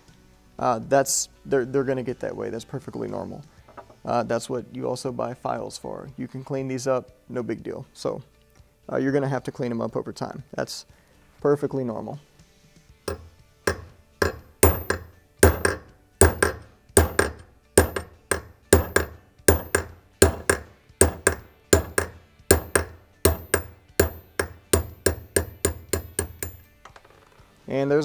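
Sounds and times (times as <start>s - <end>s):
hammer striking metal punch: 13.1s - 26.7s.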